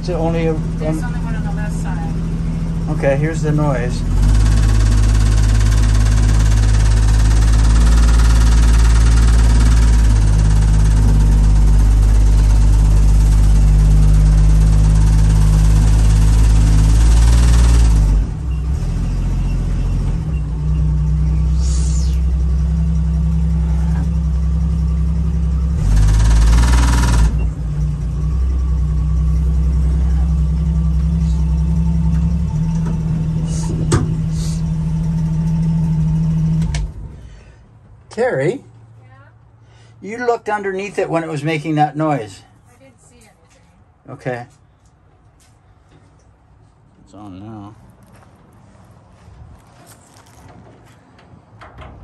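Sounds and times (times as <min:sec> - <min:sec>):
loud buzzing vibration: 0:00.0 - 0:37.6
jeep engine running under load: 0:00.0 - 0:38.3.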